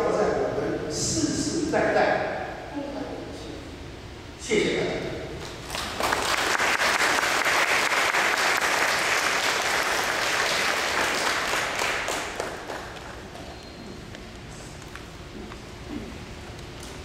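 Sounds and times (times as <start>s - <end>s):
audience applauding: 5.4s - 13.5s.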